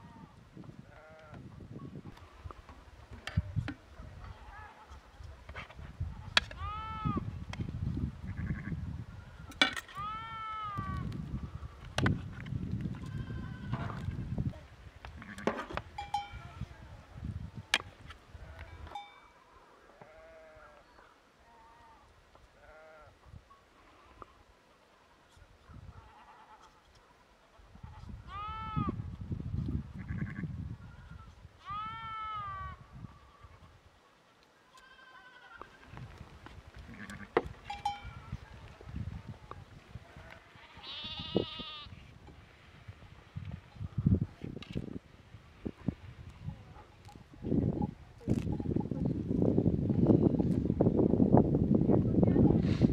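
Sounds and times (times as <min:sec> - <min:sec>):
farm animals bleating: 0:00.0 - 0:01.5, 0:06.5 - 0:07.2, 0:08.2 - 0:08.8, 0:09.9 - 0:11.1, 0:13.0 - 0:14.1, 0:15.2 - 0:16.9, 0:19.8 - 0:23.2, 0:26.0 - 0:26.7, 0:27.9 - 0:29.0, 0:30.0 - 0:33.5, 0:34.6 - 0:36.0, 0:36.8 - 0:38.4, 0:40.1 - 0:42.0.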